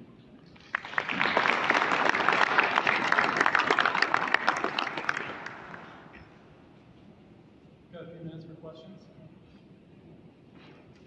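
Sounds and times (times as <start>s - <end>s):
audience applauding: 0.6s - 6.2s.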